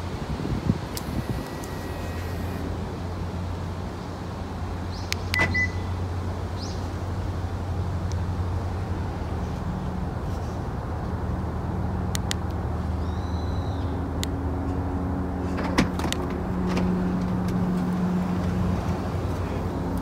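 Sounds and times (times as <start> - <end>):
vehicle engine rumbling: 0.0 - 20.0
sharp clicks: 12.1 - 12.6.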